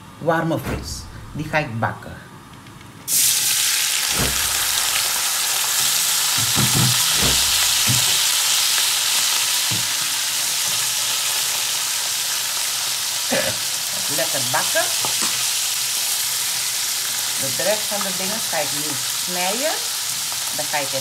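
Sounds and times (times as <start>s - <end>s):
fish sizzling in hot oil: 3.1s - 21.0s
low knocks in pan: 4.1s - 5.0s, 6.4s - 8.2s.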